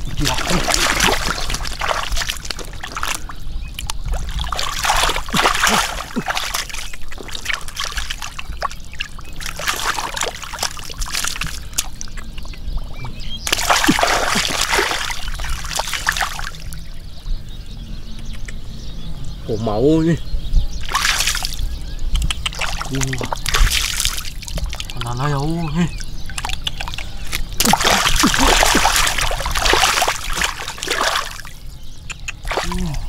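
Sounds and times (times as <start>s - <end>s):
splashing in muddy water: 0.0s - 16.8s, 20.8s - 25.2s, 25.8s - 33.0s.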